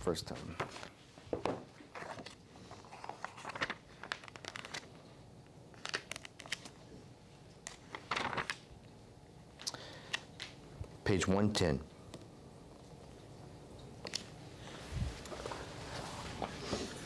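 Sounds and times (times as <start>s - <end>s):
paper pages rustling: 0.6s - 5.0s, 5.7s - 6.8s, 7.6s - 8.7s.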